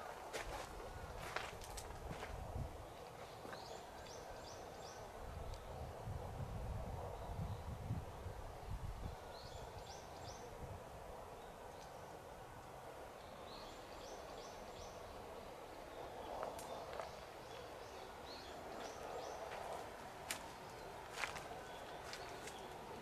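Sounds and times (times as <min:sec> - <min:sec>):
faint clicks: 0:11.8 - 0:12.0.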